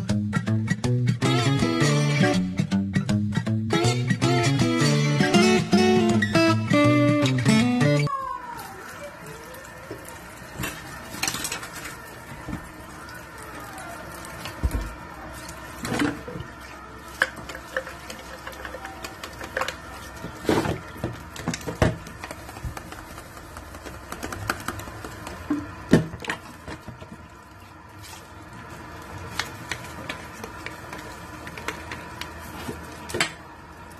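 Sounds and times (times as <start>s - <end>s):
tap water running into sink: 8.9s - 27.6s
plastic cups knocking on sink: 17.2s - 27.1s.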